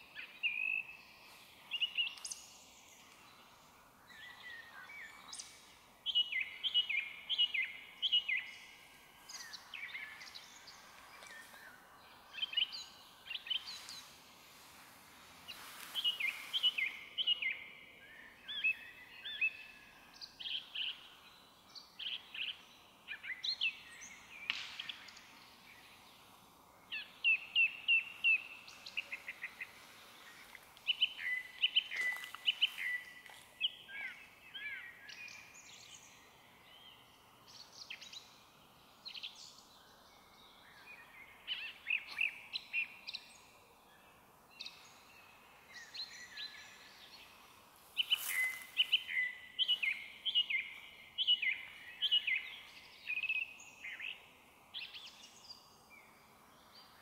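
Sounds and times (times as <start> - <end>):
small birds chirping faintly: 0.0 - 57.0
thrush whistled song: 48.0 - 54.2.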